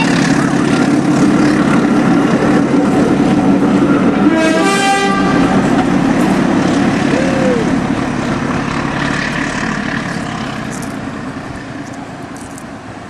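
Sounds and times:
locomotive running: 0.0 - 13.0
short train horn toot: 4.2 - 5.6.

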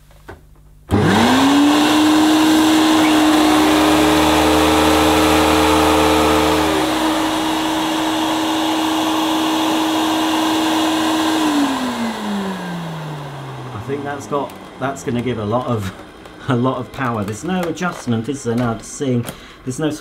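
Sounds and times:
vacuum cleaner motor whine: 0.9 - 18.0
vacuum brush roll whine: 0.9 - 18.6.

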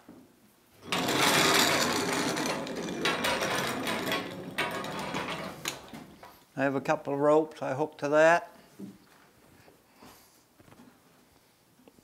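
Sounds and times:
trolley rattling on steel track: 0.8 - 5.9.

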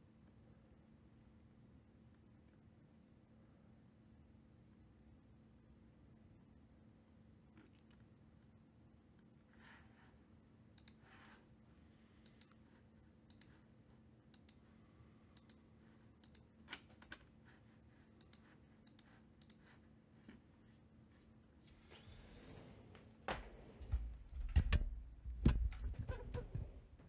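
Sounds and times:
keyboard and mouse clicks: 10.8 - 11.0, 13.3 - 13.6, 14.3 - 14.6, 18.2 - 19.6.

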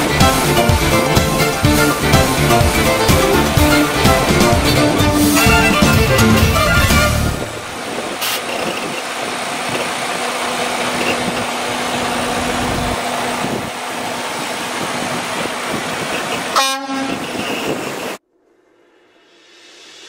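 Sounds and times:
truck engine idling: 0.0 - 16.6
wind on microphone: 7.3 - 10.0, 10.8 - 18.2
short horn toot: 16.6 - 17.4.

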